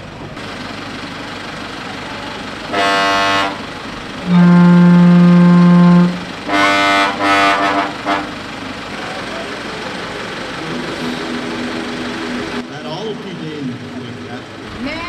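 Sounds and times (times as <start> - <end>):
horn blasts: 2.7 - 8.4.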